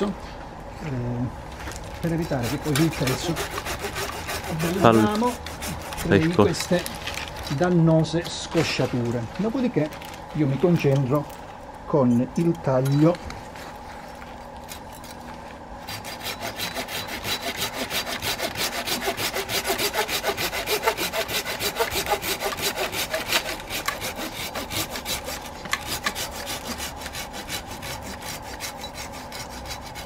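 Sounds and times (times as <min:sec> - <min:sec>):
hand saw cutting branch: 0:02.0 - 0:07.0, 0:15.8 - 0:30.0.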